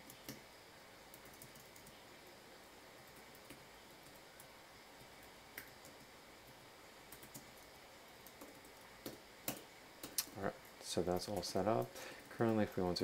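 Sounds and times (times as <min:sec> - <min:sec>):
typing on computer keyboard: 0:01.1 - 0:02.0, 0:03.0 - 0:06.1, 0:07.1 - 0:10.3.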